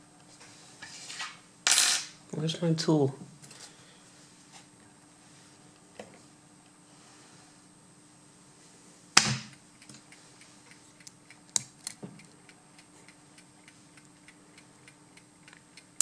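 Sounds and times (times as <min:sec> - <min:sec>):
faint regular ticking: 0:09.5 - 0:16.0.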